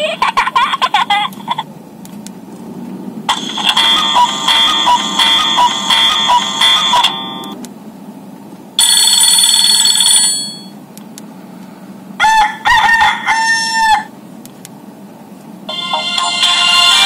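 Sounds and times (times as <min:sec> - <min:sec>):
electronic rooster crowing ringtone: 0:03.3 - 0:07.6, 0:08.8 - 0:10.7, 0:12.2 - 0:14.1, 0:15.7 - 0:17.0
buzzy electronic phone tone: 0:03.4 - 0:07.6.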